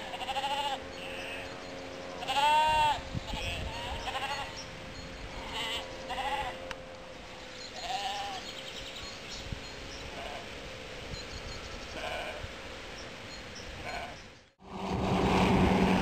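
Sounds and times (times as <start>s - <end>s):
sheep bleating: 0.0s - 1.5s, 2.2s - 4.6s, 5.4s - 6.6s, 7.8s - 8.4s, 12.0s - 12.4s, 13.8s - 14.2s.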